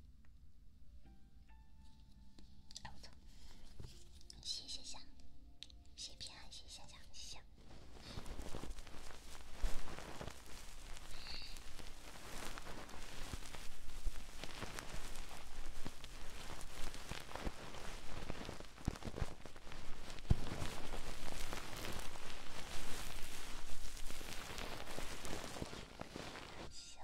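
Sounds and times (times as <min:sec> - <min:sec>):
scratching on a microphone: 0:07.6 - 0:26.8.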